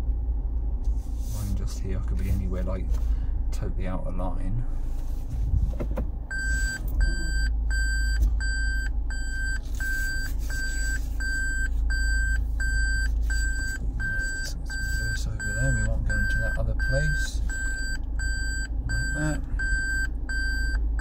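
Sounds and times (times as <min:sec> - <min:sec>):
low cabin rumble: 0:00.0 - 0:21.0
reversing beeper short beeps: 0:06.3 - 0:20.8.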